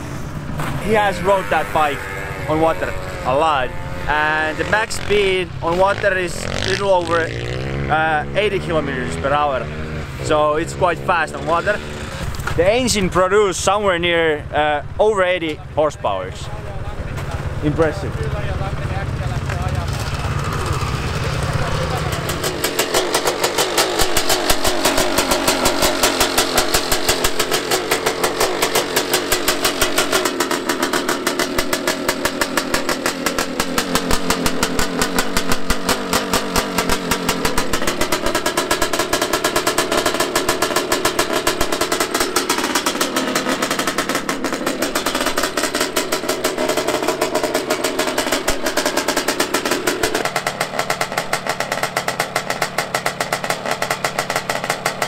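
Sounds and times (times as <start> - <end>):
two-stroke dirt bike engine running: 0.0 - 55.0.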